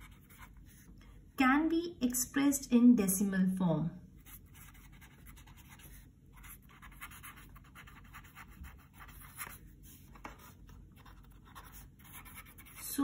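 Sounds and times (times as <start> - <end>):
pen scratching on paper: 0.0 - 0.8, 4.2 - 13.0.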